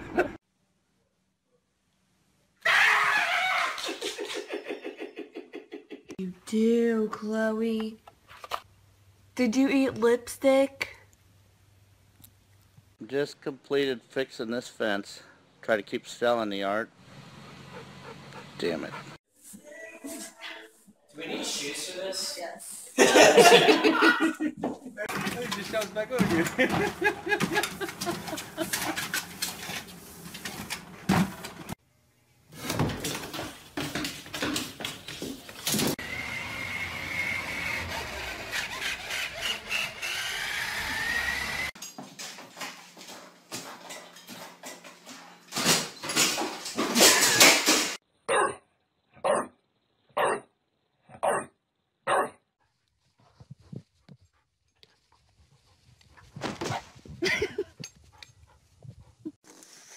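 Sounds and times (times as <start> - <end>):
toy car electric motor whining: 36.0 - 41.8
dog barking: 48.3 - 48.6, 49.2 - 49.6, 50.2 - 50.5, 51.2 - 52.4.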